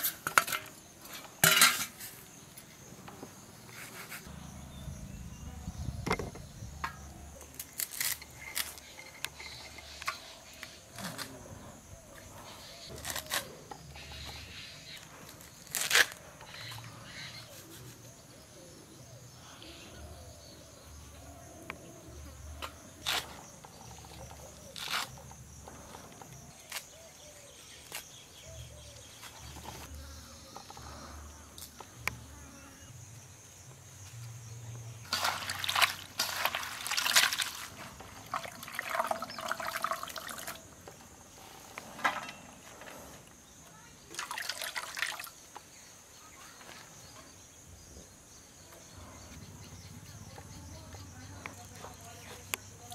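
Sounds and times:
leaves rustling: 7.4 - 9.4, 35.1 - 40.7
faint insect buzz: 29.1 - 36.6
wet leaves crunching and squelching: 35.1 - 40.6.

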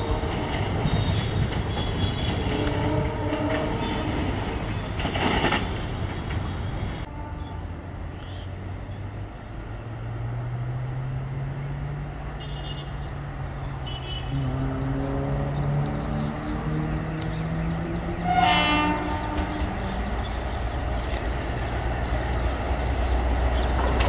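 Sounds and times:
train horn: 0.0 - 4.5, 7.0 - 7.8, 13.8 - 17.0, 18.0 - 20.0
train coaches rumbling on rails: 0.0 - 24.0
diesel train engine accelerating: 14.3 - 24.0.

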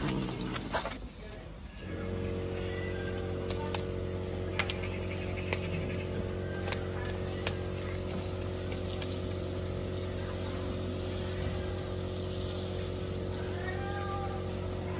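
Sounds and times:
motor drone: 1.7 - 14.9
kitten crunching fish: 2.0 - 9.7.

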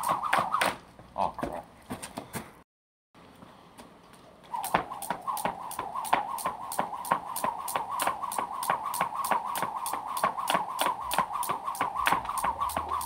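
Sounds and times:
wavering whir of rope: 0.0 - 0.8, 4.4 - 13.0
jump rope slapping ground: 0.0 - 2.4, 4.4 - 13.0.

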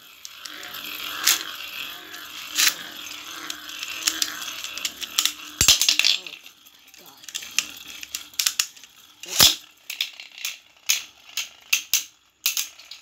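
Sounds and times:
spinning tops clacking together: 0.0 - 13.0
spinning tops whirring on glass: 0.0 - 13.0.

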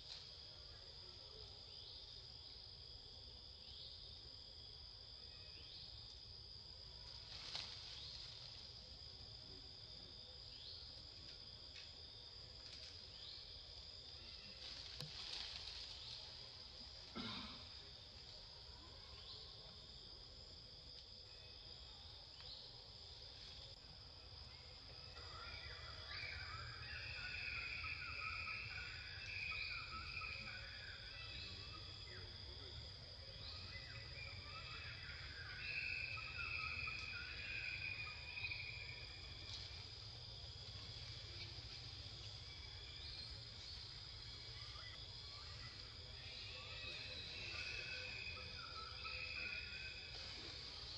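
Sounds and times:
insect chirping calls: 0.0 - 50.9.

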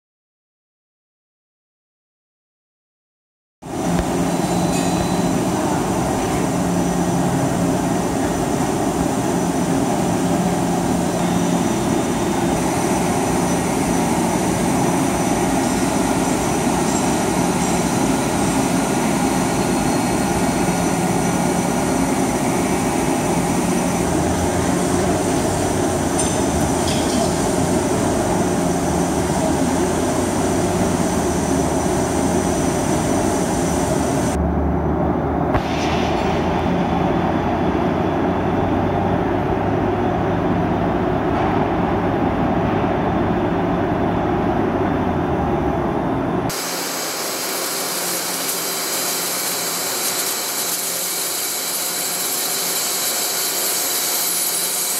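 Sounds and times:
lathe machining metal: 3.7 - 34.4, 46.5 - 54.9.

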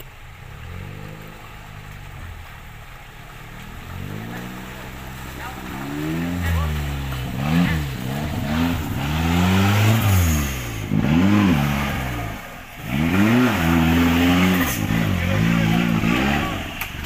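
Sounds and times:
engine revving hard: 3.9 - 17.0.

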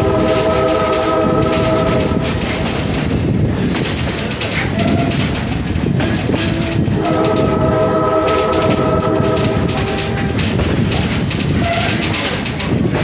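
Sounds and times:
train horn: 0.0 - 2.6, 6.4 - 10.6
train rumbling and clattering: 0.0 - 13.0.

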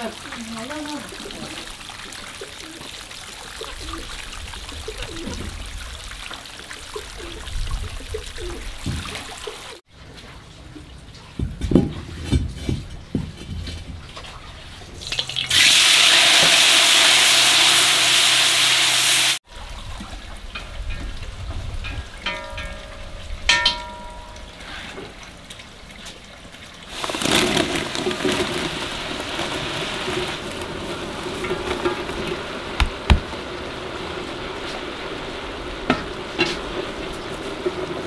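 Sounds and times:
running and splashing water: 0.0 - 9.9, 14.1 - 34.5
knocks: 32.8 - 33.3.

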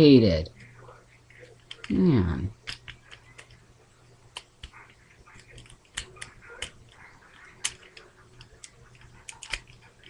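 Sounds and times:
plastic toy parts clicking: 1.5 - 2.0, 2.6 - 3.6, 5.4 - 10.0.

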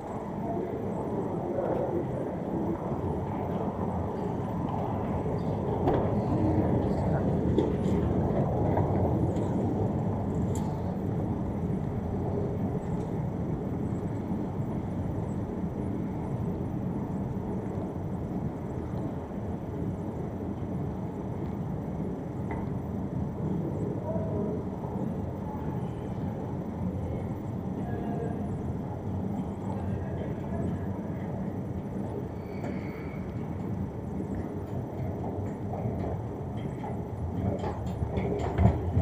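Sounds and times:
faint voices: 0.0 - 13.4, 23.3 - 39.0
escalator running rumble: 0.0 - 39.0.

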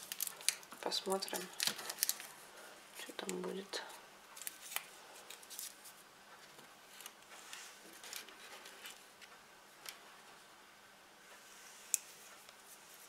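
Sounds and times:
crackling dry onion skins: 0.0 - 10.0.

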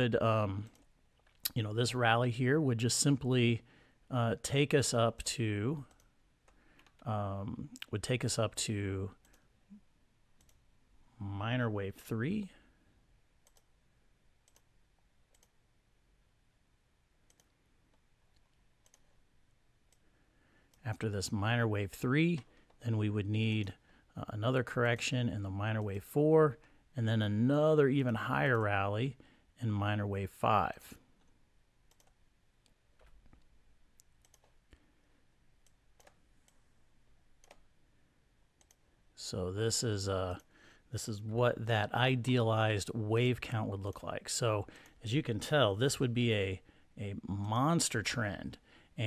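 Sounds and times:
computer mouse clicks: 5.9 - 7.1, 10.4 - 10.6, 13.4 - 13.7, 14.4 - 14.7, 15.3 - 15.6, 17.3 - 19.2, 31.2 - 34.8, 35.6 - 36.6, 37.4 - 37.7, 38.6 - 38.8
computer mouse and keyboard clicks: 31.2 - 34.6.

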